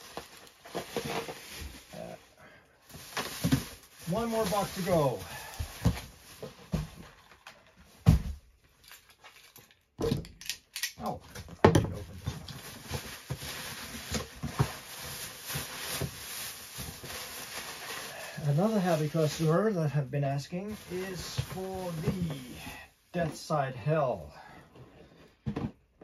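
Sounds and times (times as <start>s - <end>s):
cardboard rustling: 0.0s - 2.0s, 2.9s - 8.4s, 12.1s - 19.4s, 20.6s - 22.6s.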